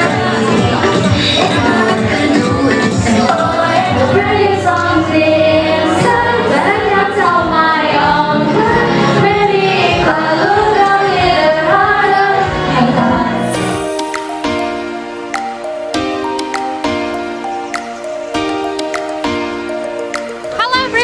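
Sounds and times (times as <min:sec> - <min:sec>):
girls singing into microphones: 0:00.0 - 0:14.9
musical accompaniment: 0:00.0 - 0:21.0
music piece: 0:08.0 - 0:21.0.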